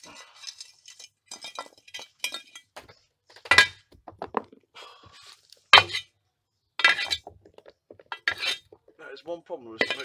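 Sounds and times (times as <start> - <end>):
coal clinking against metal pan: 0.0 - 2.7, 9.8 - 10.0.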